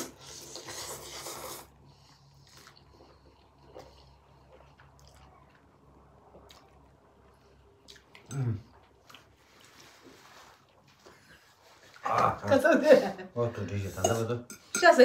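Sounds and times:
noodles slurped loudly: 0.0 - 1.8
chewing: 0.0 - 12.4.

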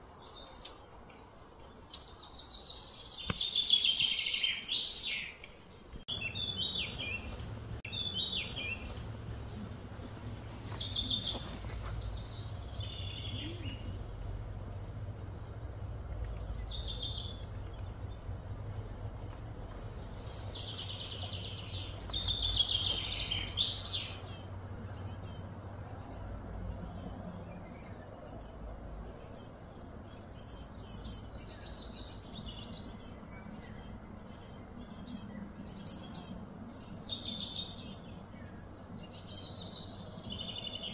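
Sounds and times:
birds chirping: 0.0 - 40.9
steady low hum: 5.7 - 37.0.

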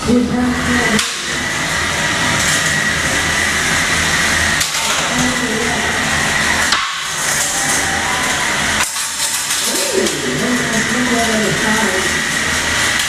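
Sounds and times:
dense mechanical noise: 0.0 - 13.0
small electric motors whirring: 0.1 - 13.0.

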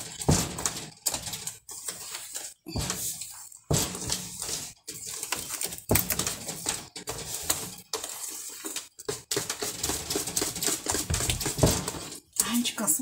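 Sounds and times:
utensil beating batter in bowl: 0.0 - 13.0.

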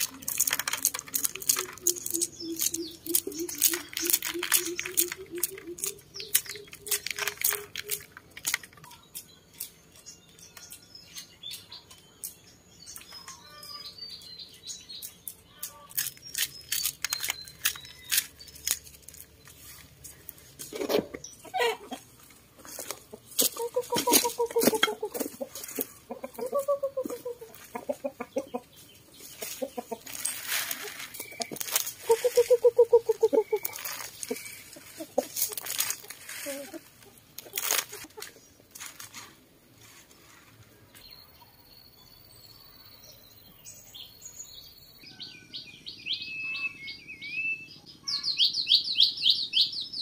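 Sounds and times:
chickens clucking: 0.0 - 10.4, 17.6 - 38.7.

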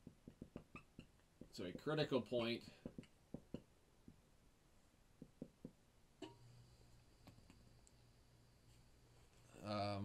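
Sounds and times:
marker tapping on whiteboard: 0.0 - 1.8, 2.4 - 4.2, 5.2 - 6.4
faint steady low hum: 0.0 - 10.0.

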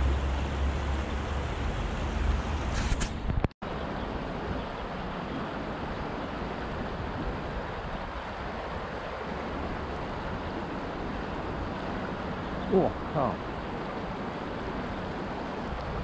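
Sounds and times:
river running over rocks: 3.7 - 16.0.

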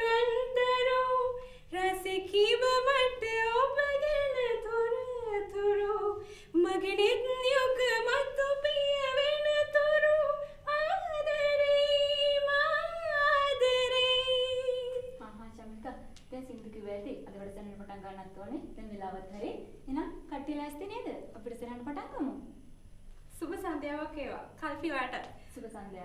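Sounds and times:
woman singing unaccompanied: 0.0 - 16.8.

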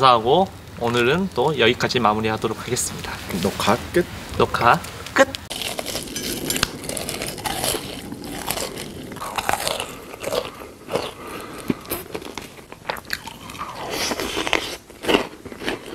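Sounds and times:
crunching and chewing: 5.5 - 15.9.

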